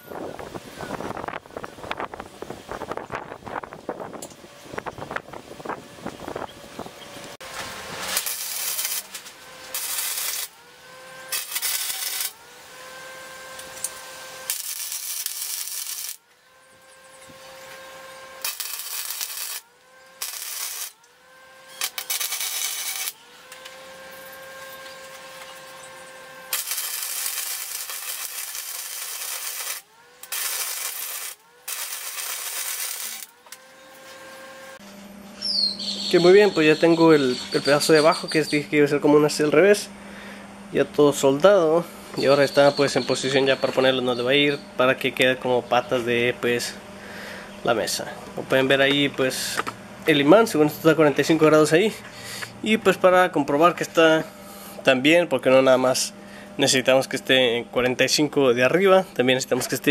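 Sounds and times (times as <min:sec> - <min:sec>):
welding arc crackling hiss: 0:07.3 - 0:34.8.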